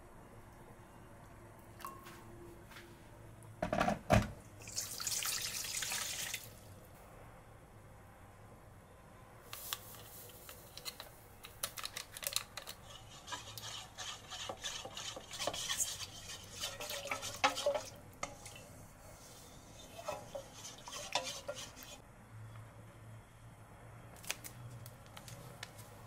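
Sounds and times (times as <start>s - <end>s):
utensil stirring in a bowl: 12.2s - 22.0s.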